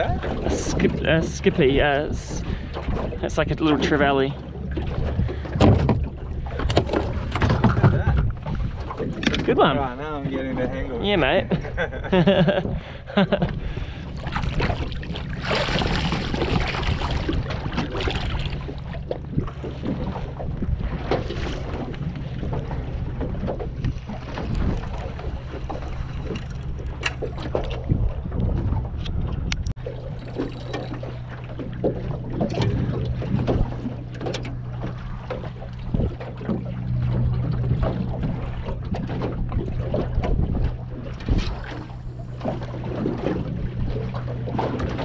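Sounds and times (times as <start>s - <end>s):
waves slapping a metal hull: 0.0s - 45.0s
steady low hum: 10.8s - 45.0s
hands splashing seawater: 14.2s - 18.7s.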